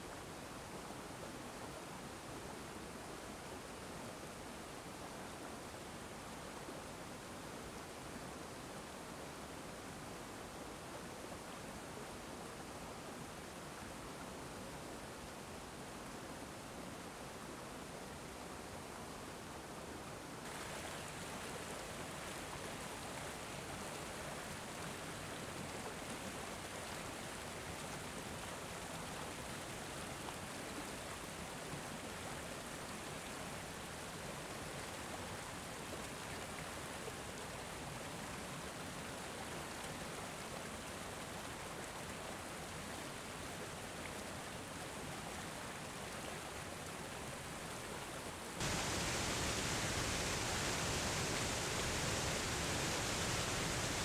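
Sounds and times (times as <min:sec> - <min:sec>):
waterfall splashing over rocks: 0:20.5 - 0:24.8, 0:48.6 - 0:54.0.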